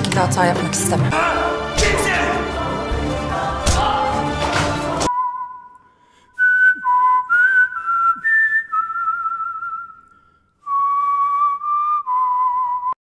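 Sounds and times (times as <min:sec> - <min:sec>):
person whistling slow tune: 0:05.1 - 0:13.0.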